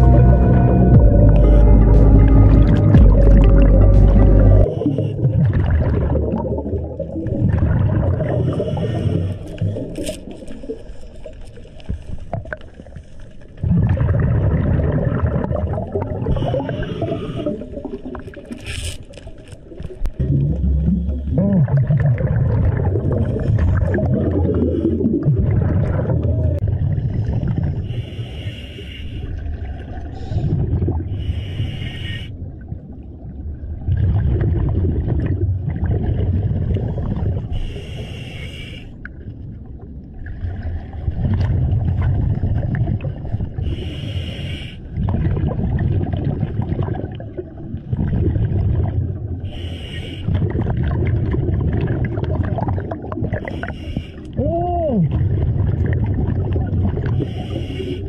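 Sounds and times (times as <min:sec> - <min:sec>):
exhaled bubbles rumbling: 0:00.0 - 0:28.4, 0:29.2 - 0:31.7, 0:32.3 - 0:38.2, 0:38.9 - 0:44.0, 0:44.8 - 0:58.0
regulator inhale hiss: 0:08.5 - 0:09.6, 0:16.3 - 0:17.8, 0:27.9 - 0:29.4, 0:31.2 - 0:32.4, 0:37.5 - 0:39.0, 0:43.6 - 0:44.9, 0:49.4 - 0:50.4, 0:53.4 - 0:54.4, 0:57.2 - 0:58.0.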